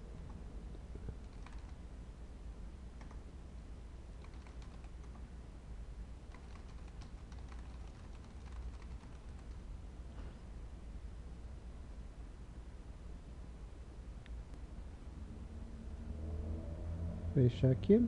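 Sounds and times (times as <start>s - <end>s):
low hum: 0.0s - 18.0s
keyboard typing: 1.0s - 1.8s, 3.0s - 3.2s, 4.2s - 5.2s, 6.3s - 9.6s.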